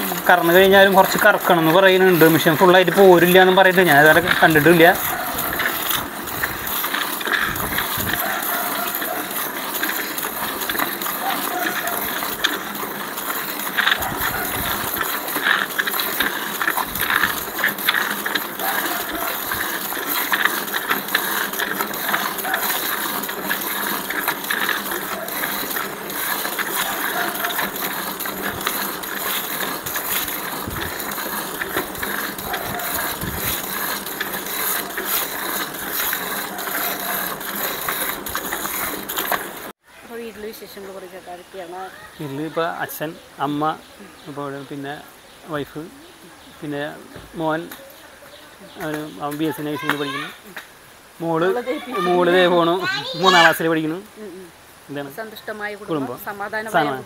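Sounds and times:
milking machine hissing and clicking: 0:00.0 - 0:39.8.

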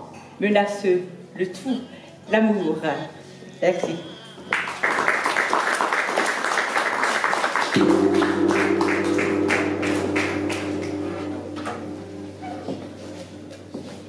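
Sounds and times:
audience applause: 0:04.5 - 0:10.3
gong ringing: 0:07.8 - 0:14.0.

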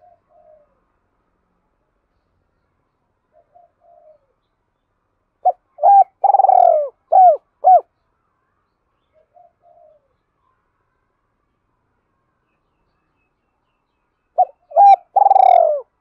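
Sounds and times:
dove cooing: 0:00.0 - 0:00.8, 0:03.3 - 0:04.3, 0:05.4 - 0:07.9, 0:09.2 - 0:10.1, 0:14.4 - 0:16.0.

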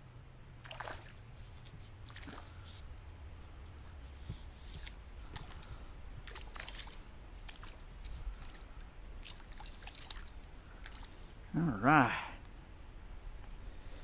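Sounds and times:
water splashing and sloshing: 0:00.6 - 0:02.8, 0:04.3 - 0:11.4.

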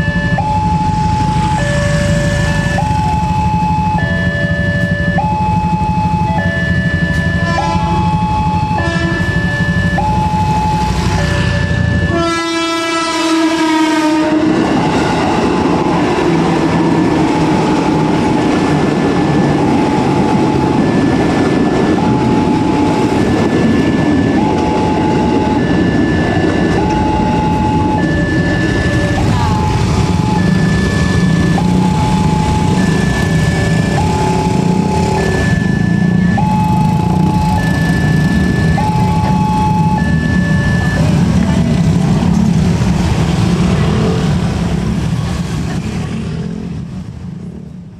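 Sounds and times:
crossing warning alarm tones: 0:00.0 - 0:47.6
train horn blast: 0:07.4 - 0:08.1, 0:08.8 - 0:09.3, 0:11.4 - 0:14.7
train rumbling and clattering past: 0:08.8 - 0:47.9.

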